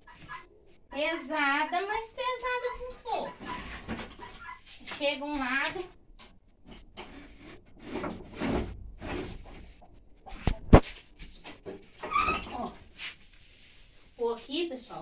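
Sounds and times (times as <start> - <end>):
wooden boards scraping and clattering: 6.7 - 9.8.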